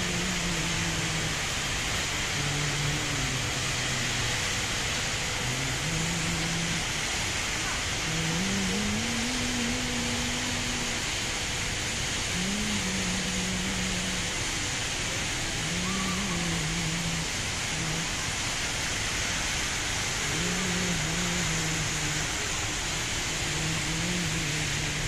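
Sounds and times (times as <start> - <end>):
indoor waterfall rushing: 0.0 - 25.0
faint voices: 12.3 - 18.9.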